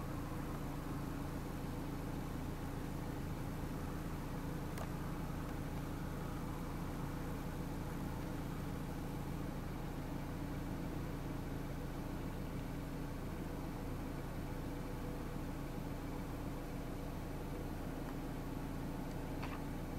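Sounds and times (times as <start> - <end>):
low mechanical hum: 0.0 - 19.9
faint click: 4.7 - 5.9.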